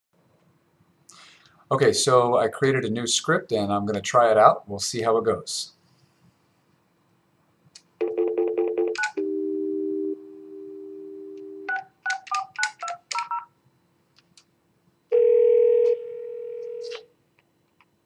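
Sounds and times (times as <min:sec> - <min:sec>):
touch-tone keypad beeps: 0:08.0 - 0:09.3, 0:11.7 - 0:13.5
telephone ringback tone: 0:08.0 - 0:11.8, 0:15.1 - 0:17.0
steady dial tone: 0:15.1 - 0:17.0.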